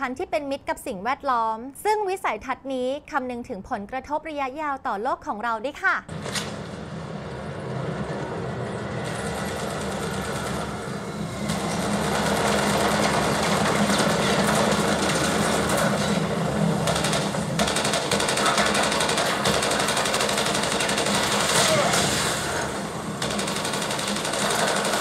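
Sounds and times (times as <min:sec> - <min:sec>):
rapid battle clatter: 0:11.5 - 0:25.0.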